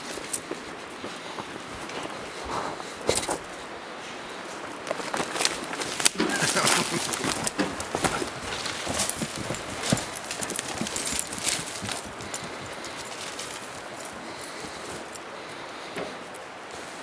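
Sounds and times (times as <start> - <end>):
river water rushing: 0.0 - 17.0
footsteps crunching through twigs: 4.4 - 15.2.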